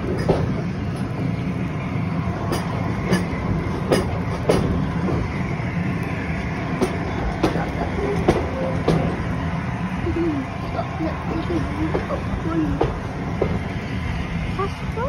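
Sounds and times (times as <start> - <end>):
steam train rumbling: 0.0 - 15.0
wheels clacking over rail joints: 0.0 - 15.0.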